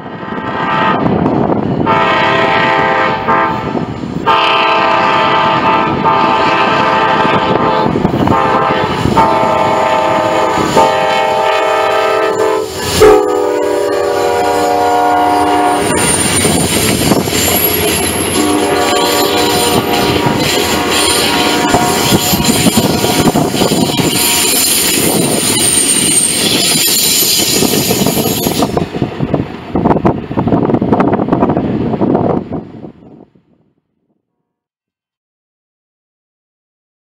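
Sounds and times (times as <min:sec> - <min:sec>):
train air horn blasts: 0:00.2 - 0:01.2, 0:01.8 - 0:16.5, 0:17.4 - 0:25.2
train wheels clattering over rails: 0:15.8 - 0:30.8.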